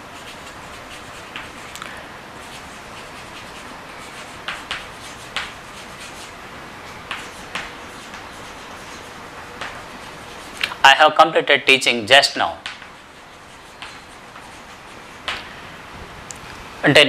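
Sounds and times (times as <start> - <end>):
chalk scratching on blackboard: 0.0 - 1.8, 2.4 - 10.7, 12.3 - 15.5.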